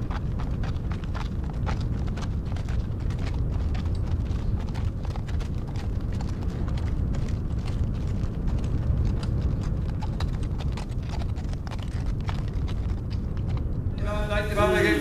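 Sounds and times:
hooves clattering: 0.0 - 13.9
steady low rumble: 0.0 - 15.0.

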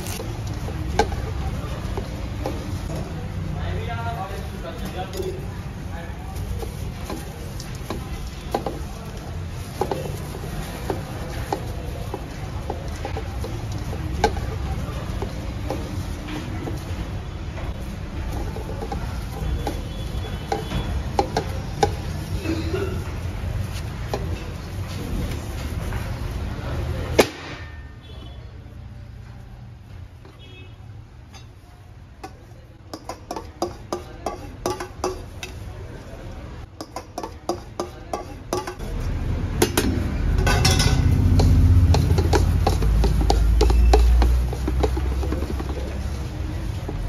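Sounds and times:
rice clinking on steel platter: 18.2 - 24.6, 32.2 - 35.7, 36.7 - 39.0, 39.6 - 47.0
scraping on metal platter: 39.6 - 47.0.

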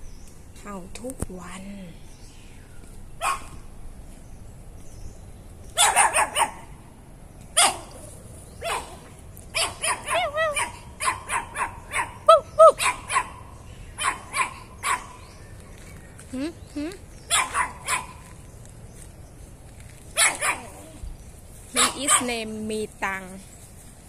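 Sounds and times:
small dog barking: 3.2 - 3.6, 5.7 - 6.7, 7.6 - 15.2, 17.3 - 18.3, 20.1 - 21.0, 21.8 - 22.4.

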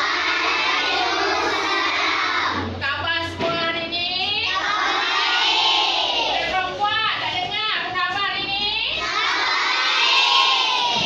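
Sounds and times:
children singing in unison: 0.0 - 2.7, 4.5 - 6.4, 9.0 - 11.0.

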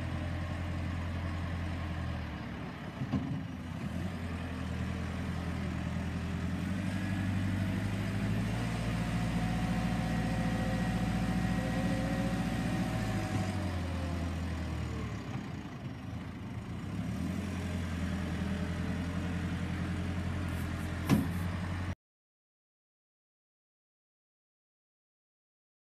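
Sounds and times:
diesel engine running under load: 0.0 - 22.0.

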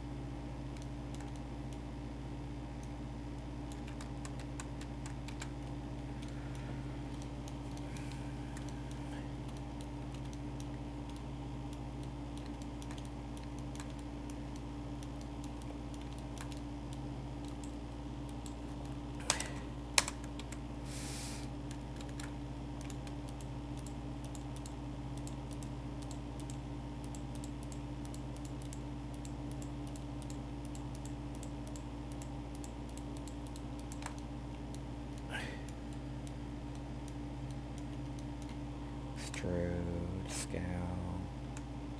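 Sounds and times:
low electrical hum: 0.0 - 41.9
keyboard and mouse clicking: 0.7 - 1.8, 3.6 - 20.6, 21.7 - 38.6.

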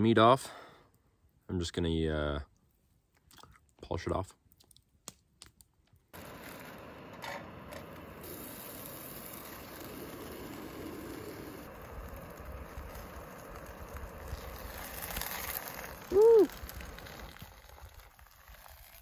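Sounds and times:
stove burning with hiss: 5.0 - 19.0.

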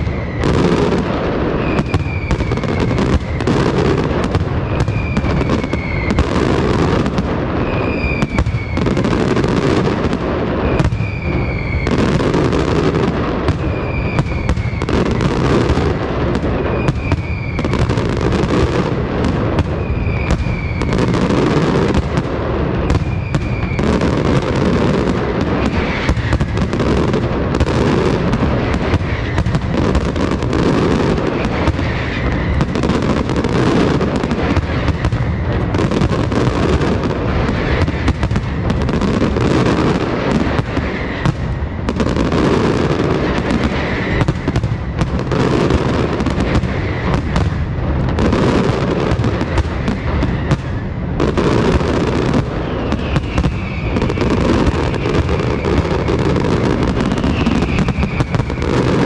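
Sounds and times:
fireworks bangs and crackle: 0.0 - 59.0.

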